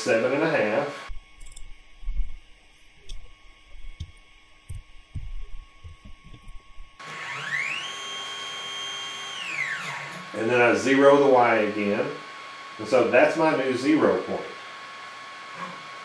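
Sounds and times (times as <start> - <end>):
stepper motor whine: 0.0 - 16.0
faint low knocks and clicks: 3.0 - 6.9.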